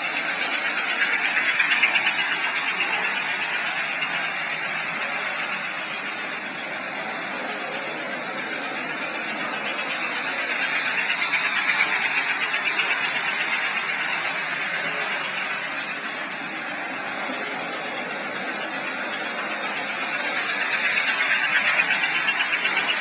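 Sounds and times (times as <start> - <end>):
model train rolling on track: 0.0 - 23.0.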